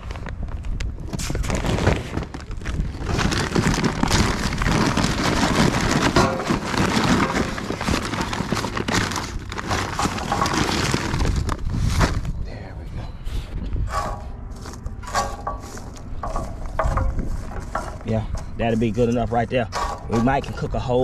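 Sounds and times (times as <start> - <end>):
charcoal crackles and clicks: 0.0 - 12.4, 13.8 - 21.0
paper bag crinkling and rustling: 0.0 - 12.4, 13.9 - 21.0.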